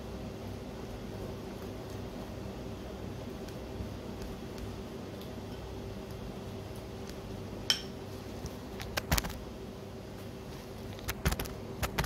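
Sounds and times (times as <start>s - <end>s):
faint steady hum: 0.0s - 12.0s
brush tapping ceramic bowl: 7.7s - 8.0s.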